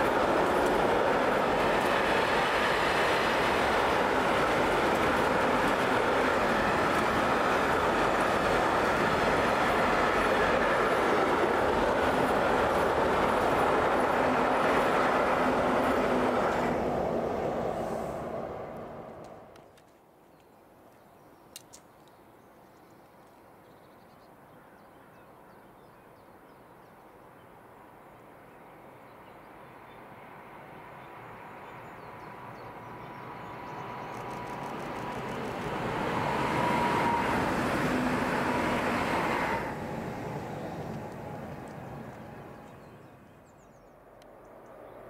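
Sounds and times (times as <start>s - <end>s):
electric train passing: 0.0s - 19.6s, 29.5s - 45.0s
faint clicks: 18.8s - 23.4s, 34.0s - 35.3s.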